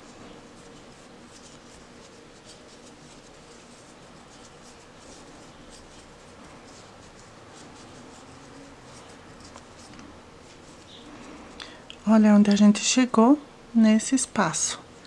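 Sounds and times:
crochet hook scratching yarn: 0:00.0 - 0:11.1.

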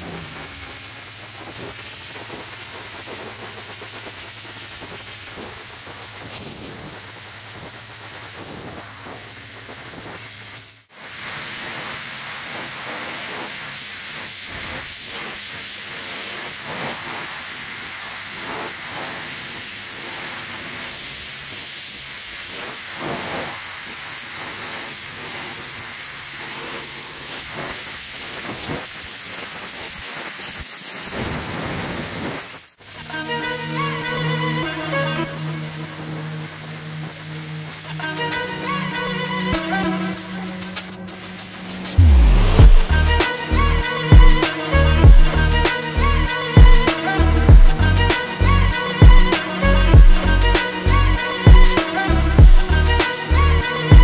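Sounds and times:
pressure washer spraying wood: 0:00.0 - 0:54.0.

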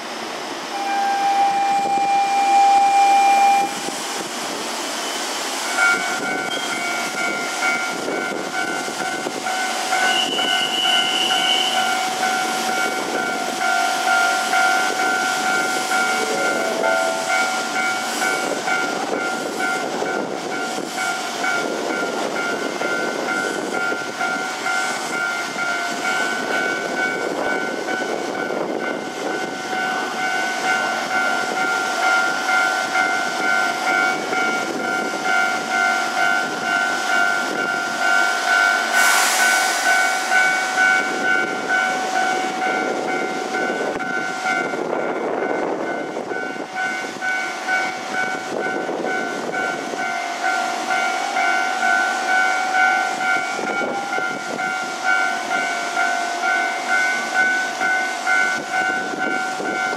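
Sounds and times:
electric train high-pitched tone: 0:00.0 - 0:59.9
burst of hiss: 0:38.8 - 0:41.2.

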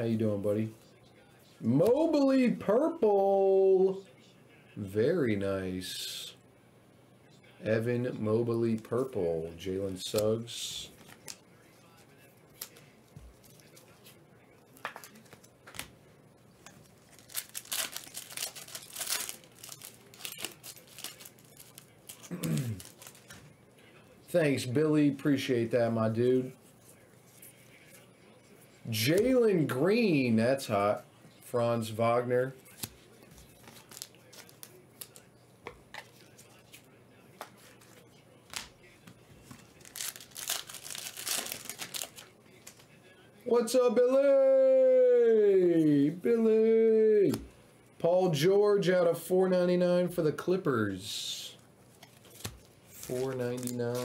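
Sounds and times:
foil wrapper crinkling: 0:16.7 - 0:23.4, 0:33.5 - 0:35.3, 0:39.6 - 0:42.8, 0:52.2 - 0:54.0.

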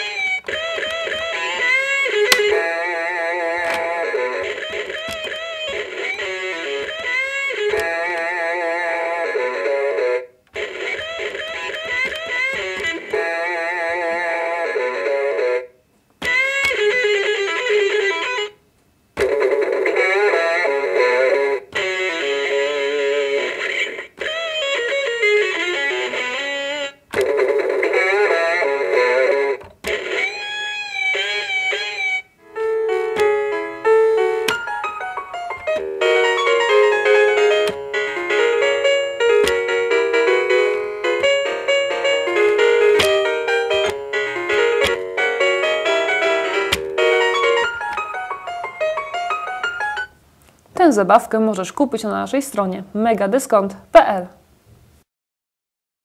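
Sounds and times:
sharp clicks: 0:00.0 - 0:02.8, 0:03.6 - 0:08.3, 0:10.5 - 0:13.5, 0:34.2 - 0:50.6
toy keyboard melodic phrases: 0:00.0 - 0:18.6, 0:19.2 - 0:50.2.

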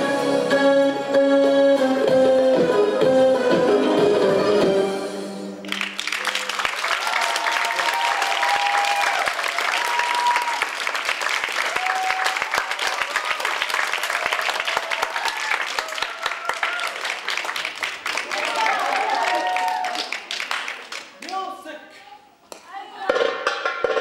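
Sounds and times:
belly dance music: 0:00.0 - 0:05.4
audience applause: 0:05.6 - 0:21.4
cheers and whoops: 0:06.2 - 0:10.8, 0:11.6 - 0:17.1, 0:18.2 - 0:20.2.

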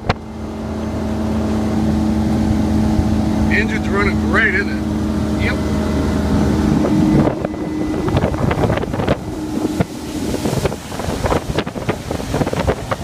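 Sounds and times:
boat engine running: 0:00.0 - 0:13.0
wind buffeting microphone: 0:04.8 - 0:13.0
water spray off hull: 0:06.1 - 0:13.0.

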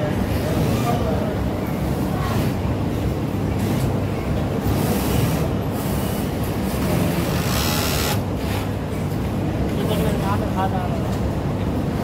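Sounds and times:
sewing machines rumbling: 0:04.6 - 0:08.7.

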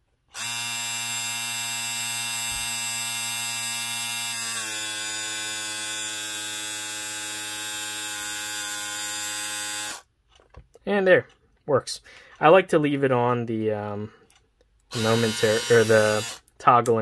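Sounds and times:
small vacuum pump buzzing hum: 0:00.3 - 0:10.1, 0:14.9 - 0:16.5.

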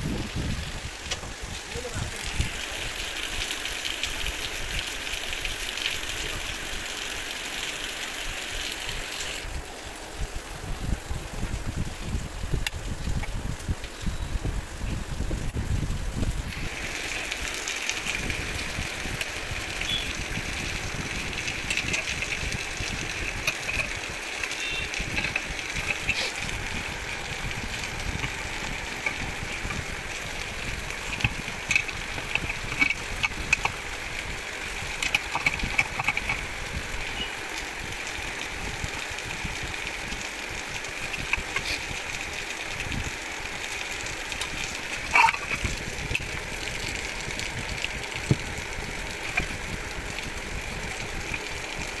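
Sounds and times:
steady background noise: 0:14.6 - 0:52.0.

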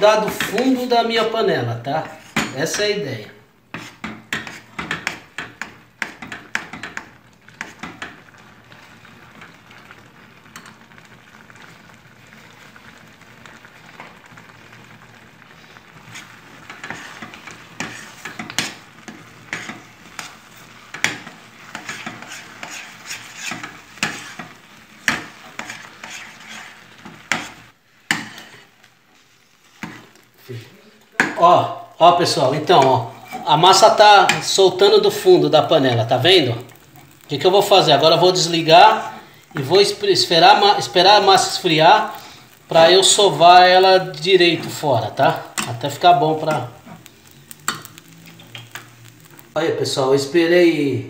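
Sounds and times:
dough stirred in metal pot: 0:00.0 - 0:50.2
steady hiss: 0:12.0 - 0:51.0.

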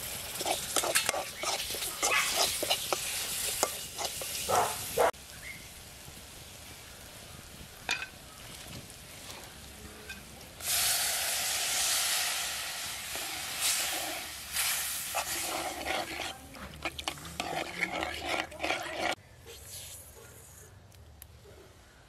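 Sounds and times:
loud hiss of sizzling: 0:00.0 - 0:10.0, 0:10.6 - 0:16.4
onions frying quietly in a pot: 0:00.0 - 0:19.2.

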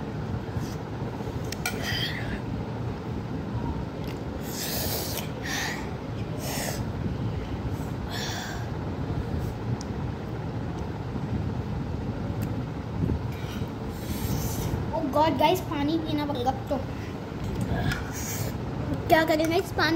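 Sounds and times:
boy hissing breaths: 0:04.4 - 0:06.9, 0:07.7 - 0:08.8, 0:13.3 - 0:14.8, 0:16.9 - 0:18.6.

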